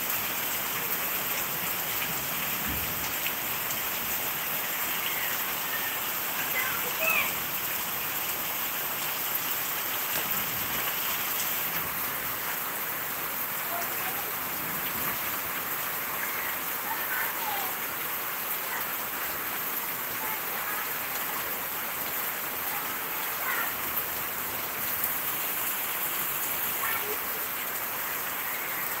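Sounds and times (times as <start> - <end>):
heavy rain on pavement and leaves: 0.0 - 29.0.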